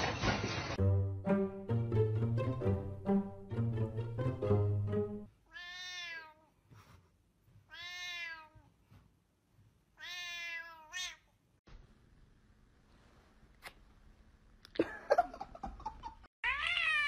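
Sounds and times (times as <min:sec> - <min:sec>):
plucked-string background music: 0:00.8 - 0:05.3
cat meowing: 0:05.5 - 0:06.5, 0:07.7 - 0:08.6, 0:10.0 - 0:11.3, 0:16.4 - 0:17.0.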